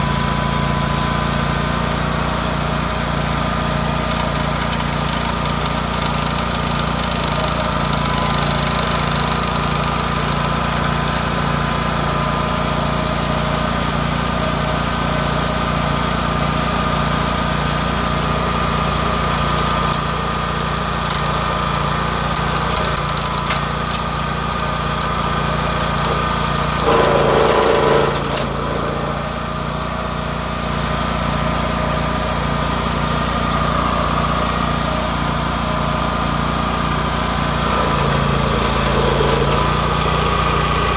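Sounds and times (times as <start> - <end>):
cutter wheel grinding stump: 0.0 - 40.9
stump grinder engine running: 0.0 - 40.9
higher engine tone: 25.2 - 40.9.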